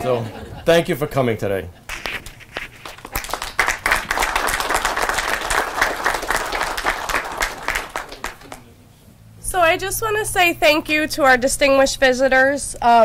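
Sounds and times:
audience applauding: 0:01.9 - 0:08.7.

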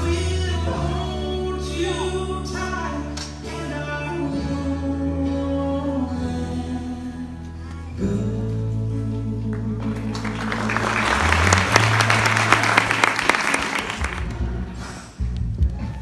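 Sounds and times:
music track: 0:00.0 - 0:16.0
audience applauding: 0:09.8 - 0:14.5.

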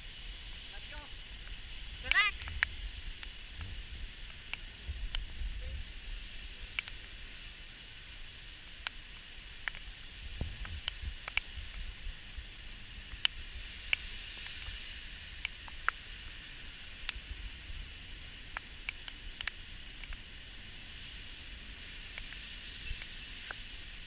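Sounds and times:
light rain hiss: 0:00.0 - 0:24.0
raindrops ticking on camera: 0:00.5 - 0:07.5, 0:08.3 - 0:20.6.

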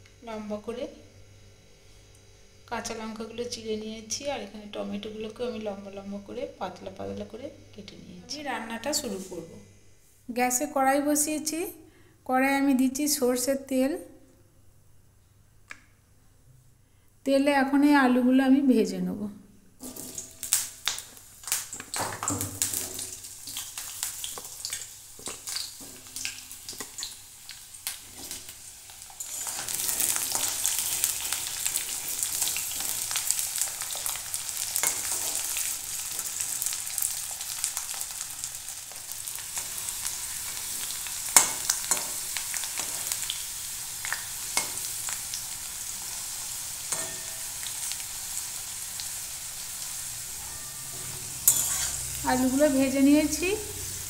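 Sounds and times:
potatoes sizzling in oil: 0:19.8 - 0:54.0
metal spatula scraping pan: 0:29.2 - 0:32.5, 0:46.9 - 0:47.5, 0:50.3 - 0:52.2.

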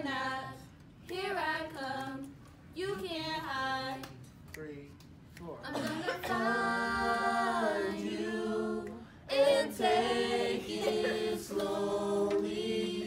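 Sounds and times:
group singing without instruments: 0:05.7 - 0:13.0.

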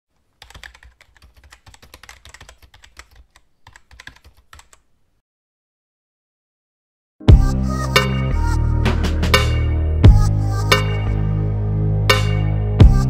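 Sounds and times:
keyboard key clicks: 0:00.4 - 0:04.9.

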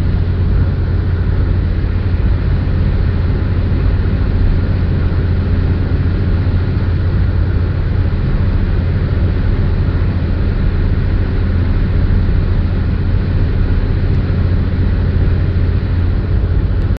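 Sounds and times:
car cabin road drone: 0:00.0 - 0:17.0.

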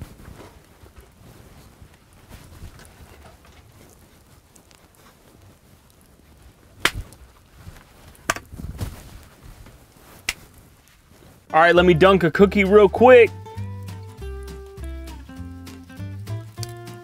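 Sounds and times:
sharp cracks: 0:06.8 - 0:07.3, 0:08.2 - 0:08.6, 0:10.2 - 0:10.6, 0:12.7 - 0:17.0.

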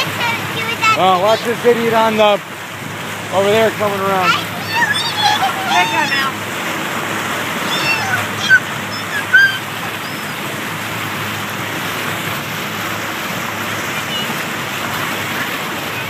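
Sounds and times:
motorboat engine and wake: 0:00.0 - 0:16.0
high-pitched voice sounds: 0:04.2 - 0:06.4, 0:07.6 - 0:10.4.

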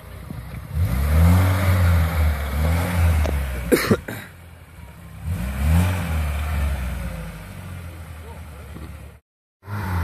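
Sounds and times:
car engine revving: 0:00.1 - 0:10.0.

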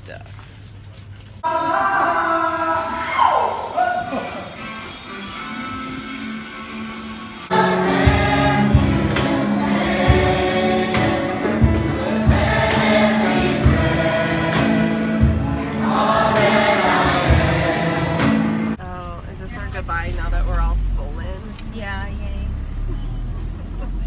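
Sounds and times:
group singing in parts: 0:01.4 - 0:03.2, 0:07.5 - 0:18.8.

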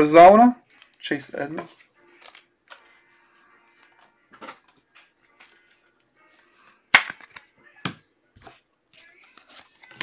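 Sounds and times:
trading cards handled on table: 0:00.7 - 0:03.0, 0:07.0 - 0:10.0.

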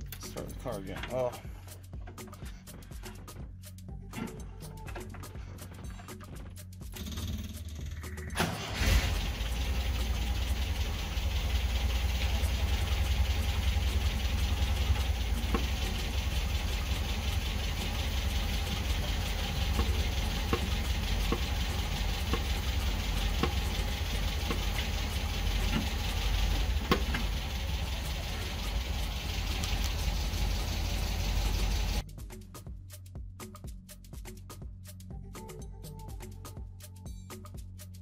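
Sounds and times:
car engine idling: 0:08.0 - 0:32.0.

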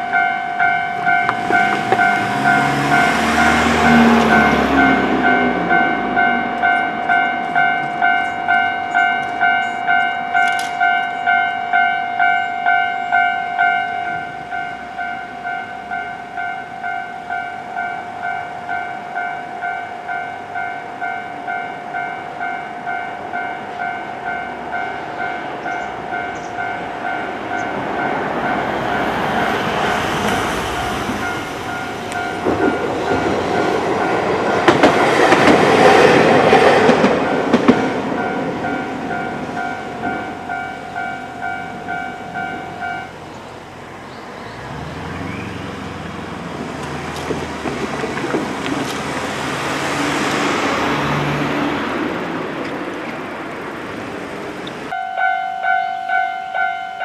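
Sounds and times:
level crossing bell ringing: 0:00.0 - 0:29.2, 0:37.3 - 0:43.2, 0:54.9 - 0:57.0
tram running noise: 0:00.0 - 0:57.0
wheel clacks over rail joints: 0:00.8 - 0:11.4, 0:27.5 - 0:42.9, 0:45.8 - 0:51.1.

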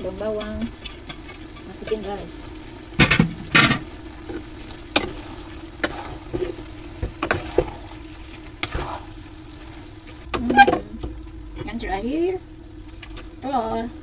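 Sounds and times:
food sizzling in a pan: 0:00.0 - 0:14.0
spatula scraping and knocking pan: 0:03.0 - 0:07.8.

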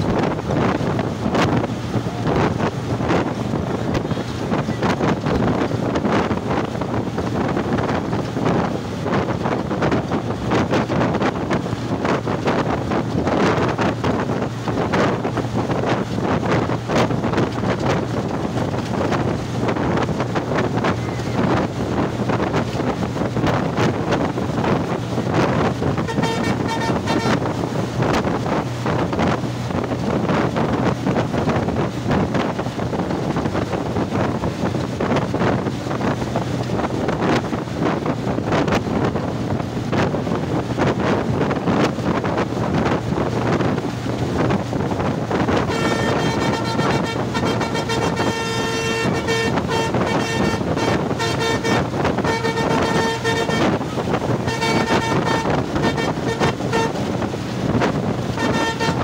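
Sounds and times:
bus engine and road noise: 0:00.0 - 0:59.0
wind buffeting microphone: 0:00.0 - 0:59.0
vehicle horn: 0:26.0 - 0:27.5, 0:45.5 - 0:57.2, 0:58.3 - 0:59.0.

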